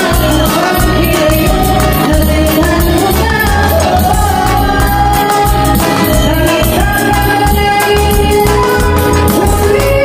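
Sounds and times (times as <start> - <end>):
backing track with bass beat: 0.0 - 10.0
woman singing into microphone: 0.0 - 10.0.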